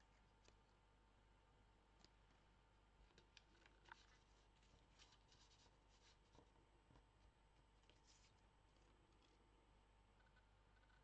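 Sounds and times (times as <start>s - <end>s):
paper cards rustling: 3.2s - 6.5s.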